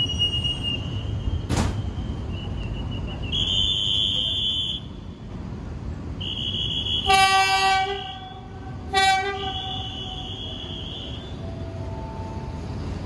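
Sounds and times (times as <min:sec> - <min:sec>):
train horn blasts: 0:06.3 - 0:11.9.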